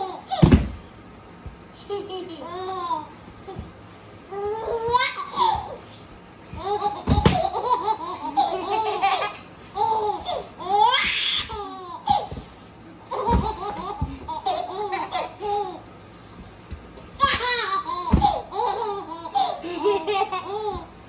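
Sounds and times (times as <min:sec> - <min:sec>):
baby laughing: 0:01.8 - 0:03.6, 0:06.6 - 0:12.3, 0:13.1 - 0:15.8, 0:17.2 - 0:20.9
children giggling: 0:06.8 - 0:09.4, 0:18.6 - 0:20.8.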